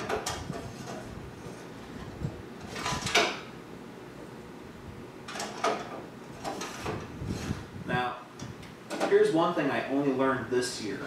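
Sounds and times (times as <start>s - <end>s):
hardware scraping in metal case: 5.3s - 7.7s.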